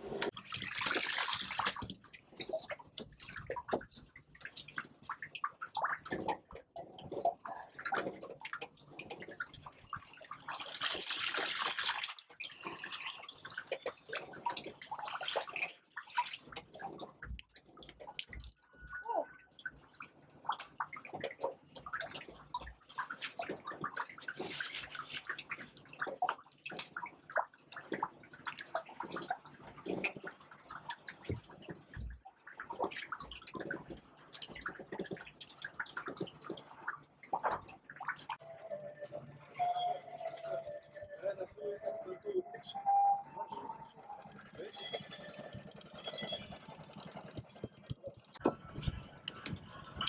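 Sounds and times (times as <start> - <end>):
water splashing and dripping: 0.0 - 50.0
water draining from net: 0.1 - 38.8.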